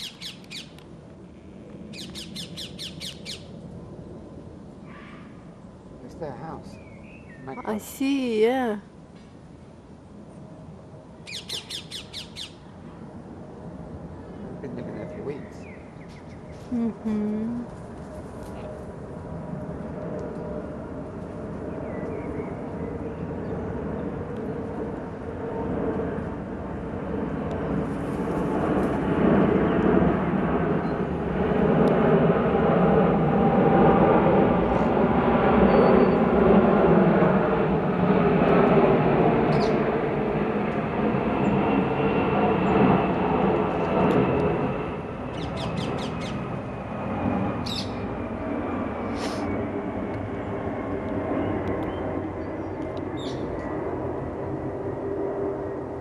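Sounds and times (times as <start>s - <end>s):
bird squawks: 0.0s - 0.7s, 2.0s - 3.5s, 11.3s - 12.6s, 47.6s - 48.0s.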